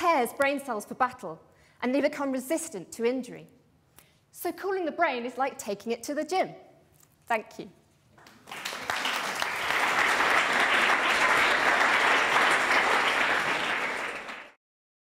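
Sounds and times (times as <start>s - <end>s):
audience applauding: 8.2s - 14.6s.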